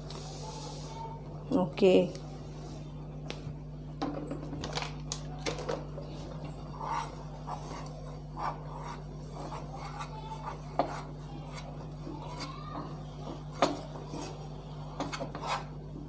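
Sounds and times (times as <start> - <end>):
steady low hum: 0.0 - 16.0
whisk scraping in saucepan: 6.8 - 15.8.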